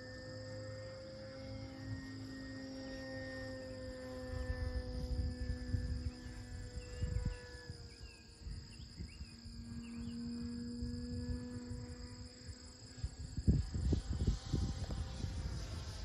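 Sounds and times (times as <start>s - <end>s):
insect trill: 0.0s - 16.0s
model plane motor humming: 0.0s - 16.0s
wind buffeting microphone: 4.3s - 16.0s.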